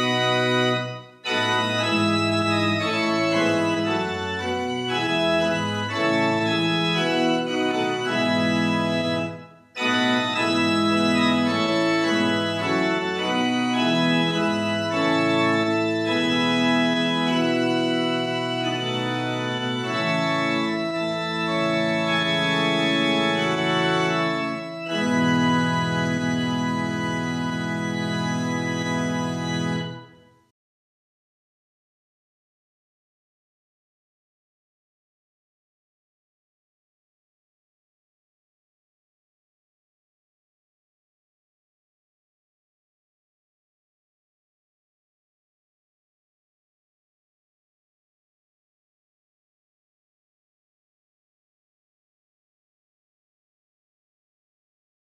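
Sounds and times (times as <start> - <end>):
organ playing slow chords: 0.0 - 30.4.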